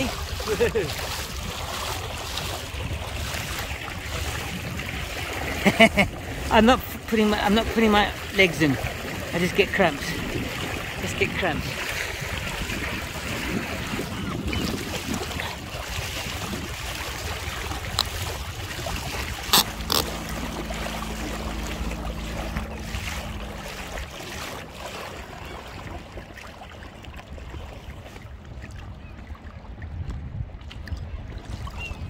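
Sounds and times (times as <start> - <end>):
low wind rumble: 0.0 - 32.0
water rushing along a hull: 0.0 - 32.0.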